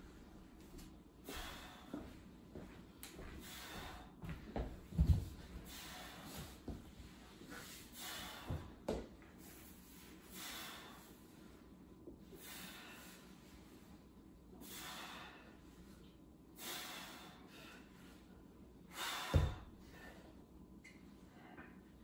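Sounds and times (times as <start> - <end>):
person exhaling forcefully: 18.9 - 20.1.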